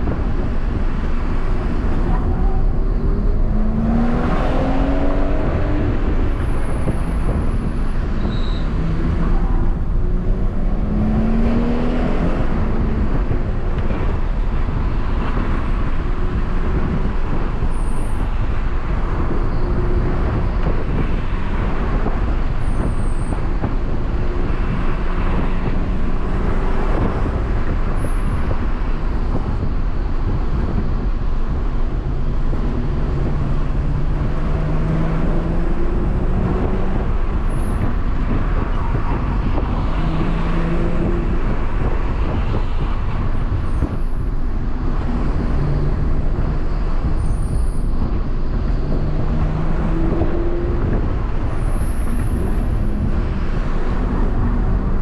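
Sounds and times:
car engine revving: 0:00.0 - 0:55.0
road and wind noise: 0:00.0 - 0:55.0.

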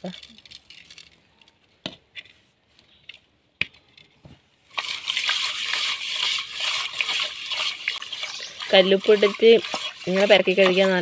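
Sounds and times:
gritty wet scrubbing: 0:04.7 - 0:11.0
salt ticking onto fish: 0:04.9 - 0:11.0.

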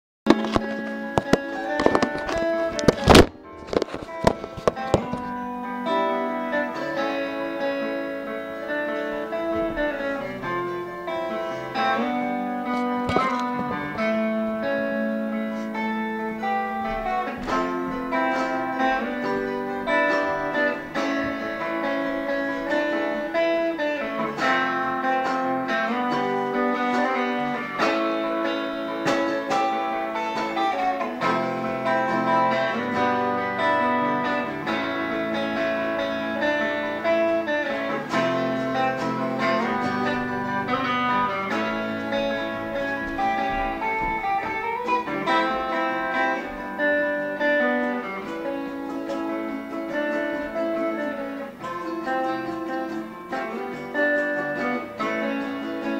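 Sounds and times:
acoustic guitar playing: 0:00.2 - 0:55.9
electric guitars playing: 0:00.3 - 0:55.9.

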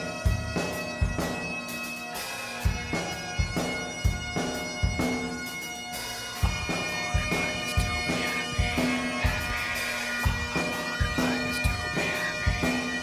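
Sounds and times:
bagpipes droning: 0:00.0 - 0:13.0.

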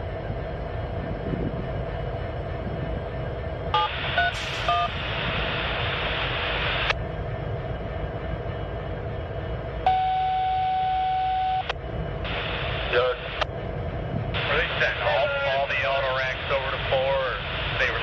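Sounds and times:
train rumbling over trestle: 0:00.0 - 0:18.0
long steady beep: 0:03.8 - 0:05.0, 0:09.8 - 0:12.5
radio static hiss: 0:03.8 - 0:07.0, 0:12.3 - 0:13.5, 0:14.4 - 0:18.0
touch-tone beeps: 0:09.9 - 0:11.7.

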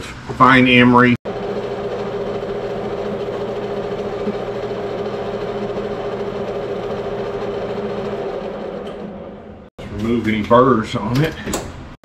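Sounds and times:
lathe running: 0:01.3 - 0:09.7.

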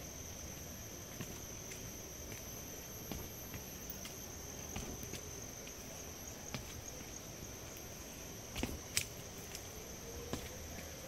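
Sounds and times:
high-pitched insect chorus: 0:00.0 - 0:11.0
footsteps on stone steps: 0:01.1 - 0:05.9, 0:06.5 - 0:07.8, 0:08.5 - 0:09.7, 0:10.3 - 0:10.9.

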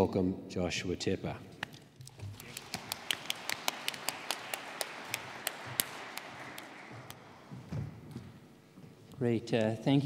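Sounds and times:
audience applauding: 0:02.1 - 0:07.6.

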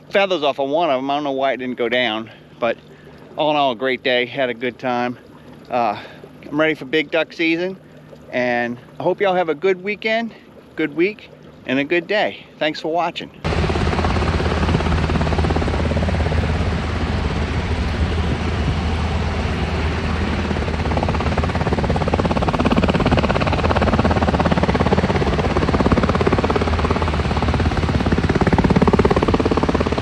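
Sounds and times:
turbine hum: 0:00.0 - 0:30.0
helicopter rotor beating: 0:13.4 - 0:30.0.

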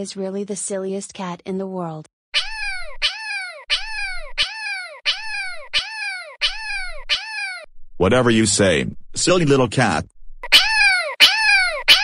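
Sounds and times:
cat meowing: 0:02.4 - 0:07.7, 0:10.4 - 0:12.0.

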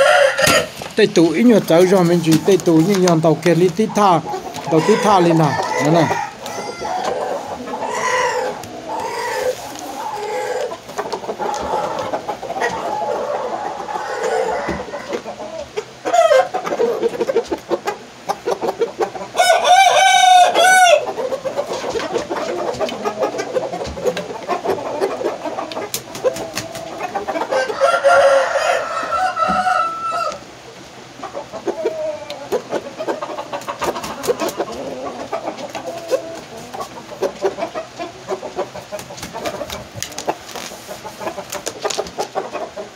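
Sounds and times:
rooster crowing loudly: 0:00.0 - 0:00.8, 0:04.7 - 0:10.7, 0:13.9 - 0:15.1, 0:19.4 - 0:21.1, 0:27.5 - 0:30.4
rooster clucking: 0:00.0 - 0:42.9.

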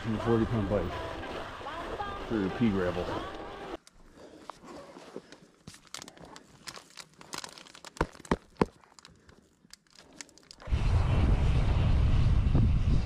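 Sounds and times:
crunching on dry grass and twigs: 0:01.2 - 0:10.7
wind noise: 0:10.6 - 0:13.0.

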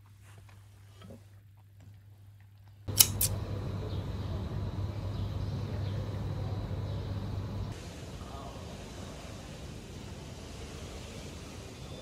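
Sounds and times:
sharp clicks: 0:02.9 - 0:03.5
low outdoor rumble: 0:02.9 - 0:12.0.

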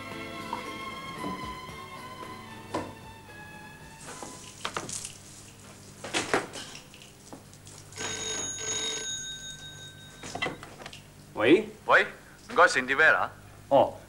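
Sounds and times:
footsteps: 0:03.9 - 0:06.6
telephone ringing: 0:08.0 - 0:10.8.

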